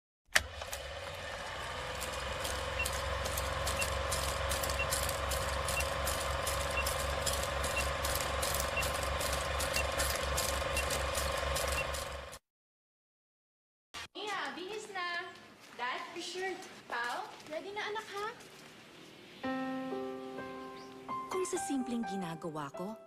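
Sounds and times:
film projector whirring: 0.3s - 12.4s
short high beeps: 6.7s - 7.0s.

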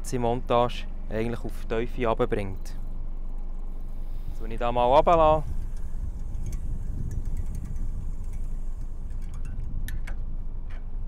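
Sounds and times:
low steady rumble: 0.0s - 11.0s
fishing reel clicking: 4.3s - 10.2s.

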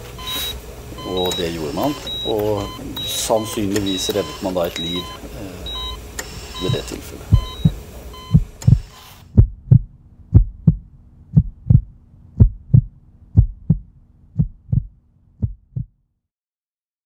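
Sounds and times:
faint steady hum: 0.0s - 15.6s
heartbeat: 6.6s - 16.0s.

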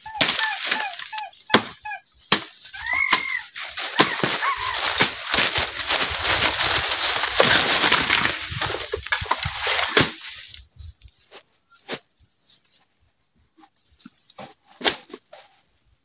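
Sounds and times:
leaves and brush rustling: 0.0s - 12.9s
twigs snapping: 2.3s - 10.2s.

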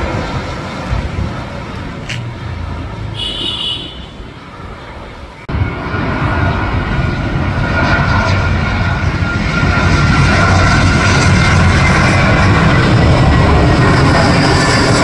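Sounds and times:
jet engines passing overhead: 0.0s - 15.0s.

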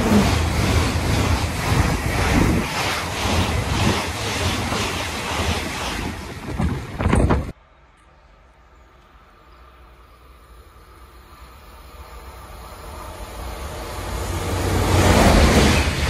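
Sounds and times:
train wheels rushing on rail: 0.0s - 7.6s, 8.7s - 16.0s.

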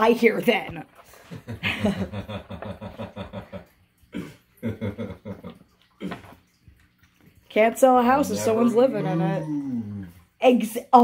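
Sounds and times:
cat chewing wet food: 5.5s - 7.5s.

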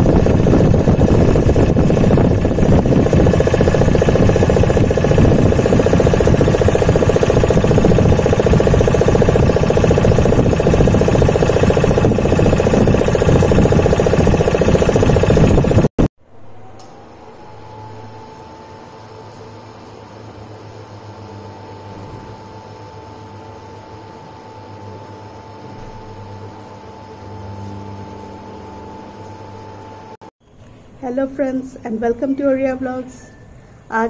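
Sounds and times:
boat engine running: 0.0s - 16.1s.

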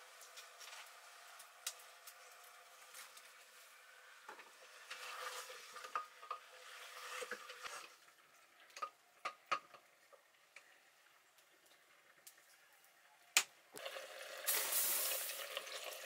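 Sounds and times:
spatula scraping metal pot: 4.8s - 8.0s
meat sizzling: 13.8s - 16.0s.

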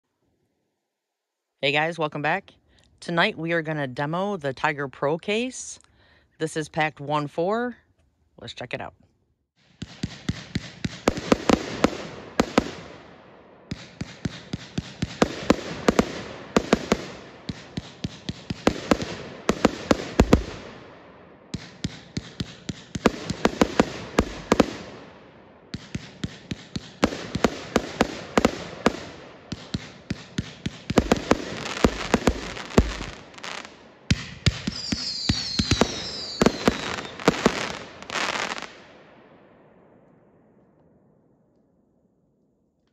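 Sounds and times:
firework crackling: 9.6s - 13.1s, 13.7s - 20.8s, 21.6s - 25.1s, 25.8s - 38.8s
firework shots: 9.6s - 39.2s
high falling whistles: 34.7s - 37.1s.

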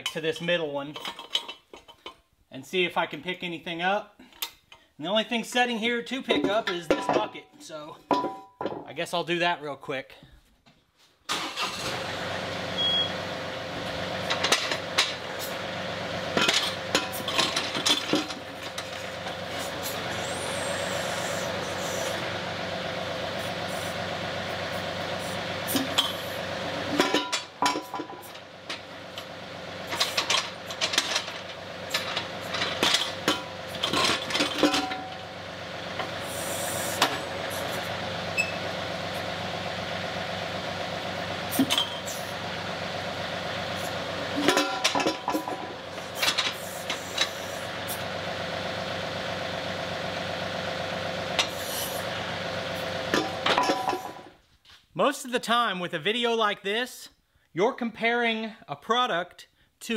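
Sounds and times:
metal clanks and knocks: 0.9s - 2.2s, 6.3s - 8.9s, 14.2s - 15.2s, 16.3s - 19.7s, 26.9s - 29.3s, 29.9s - 35.2s, 44.4s - 47.4s, 53.1s - 54.3s
diesel tractor engine running: 11.3s - 54.4s.

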